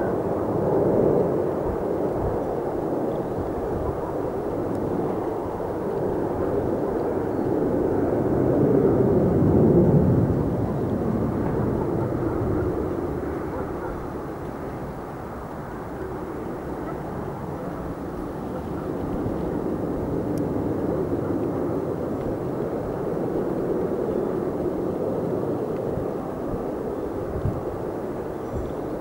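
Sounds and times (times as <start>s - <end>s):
jet engines rushing rumble: 0.0s - 29.0s.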